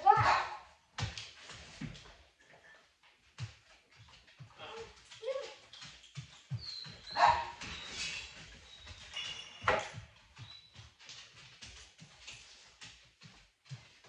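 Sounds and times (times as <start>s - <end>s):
dog paws tapping on wooden floor: 0.0s - 14.0s
dog barking: 7.1s - 7.6s.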